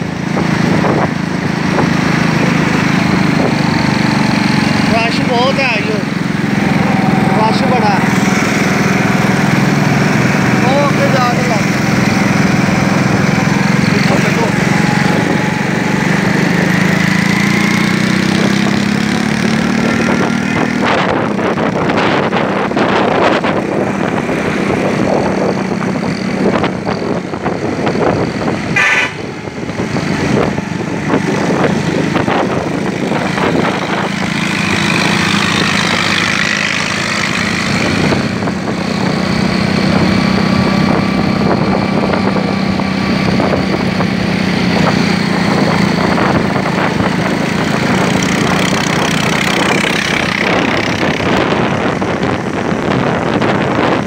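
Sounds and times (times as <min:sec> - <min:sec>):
road noise: 0:00.0 - 0:54.0
vehicle engine running: 0:00.0 - 0:54.0
car horn: 0:28.8 - 0:29.3.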